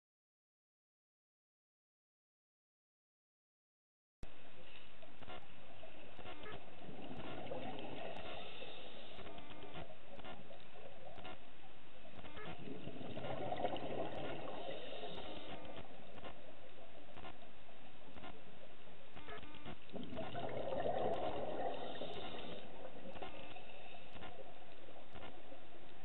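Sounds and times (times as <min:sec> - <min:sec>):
bubbling from exhaled breath: 0:12.6 - 0:15.8, 0:19.9 - 0:23.2
underwater water rush: 0:12.6 - 0:16.1, 0:19.9 - 0:24.7
sharp clicks: 0:19.2 - 0:20.4, 0:22.2 - 0:25.4.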